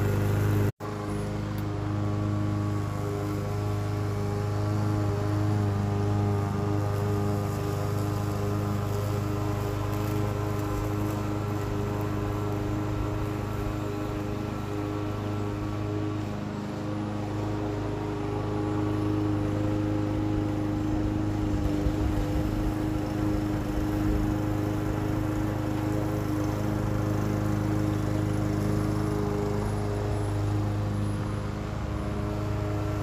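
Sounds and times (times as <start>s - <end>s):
lawn mower engine running: 0.0s - 33.0s.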